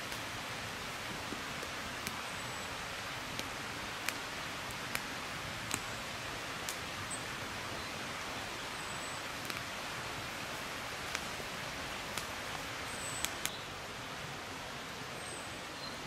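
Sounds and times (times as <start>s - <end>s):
outdoor forest hiss: 0.0s - 16.0s
sharp clicks: 13.2s - 13.6s.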